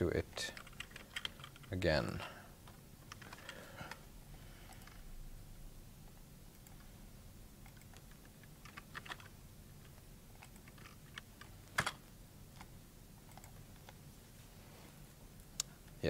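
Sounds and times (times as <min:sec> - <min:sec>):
faint keyboard typing: 0:00.3 - 0:04.0, 0:04.6 - 0:05.0, 0:06.1 - 0:06.9, 0:07.6 - 0:14.0.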